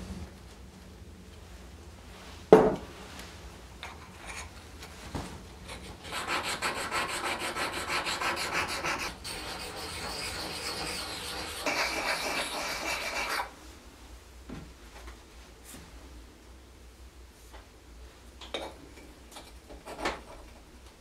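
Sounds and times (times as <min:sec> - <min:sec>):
knock on wooden bench: 0:02.5 - 0:02.8
steel blade rubbing on whetstone: 0:06.0 - 0:13.5.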